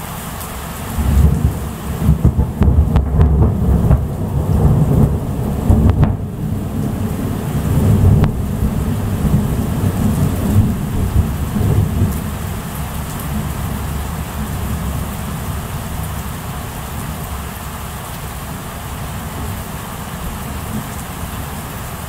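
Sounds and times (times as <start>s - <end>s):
heavy rain: 0.0s - 22.0s
thunder rumbling: 0.9s - 17.2s.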